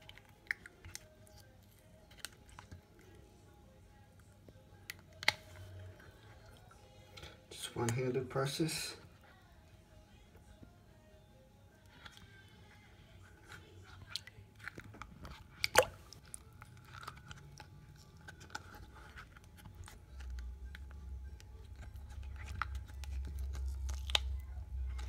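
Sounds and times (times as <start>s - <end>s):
rubber mould peeling with crackling clicks: 0.0s - 3.2s, 4.8s - 5.8s, 13.4s - 25.0s.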